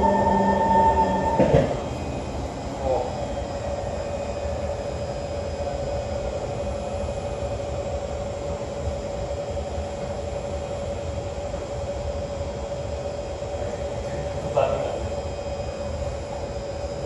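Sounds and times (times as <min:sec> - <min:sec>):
wheels rumbling on track: 0:00.0 - 0:08.7
train motor whine: 0:00.0 - 0:17.0.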